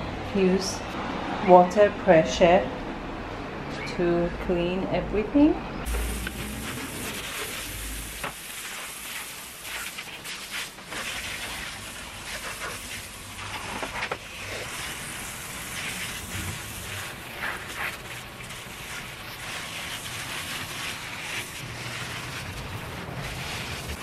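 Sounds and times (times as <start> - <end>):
hose spray hissing onto tiles: 5.9 - 24.0
water splashes: 5.9 - 24.0.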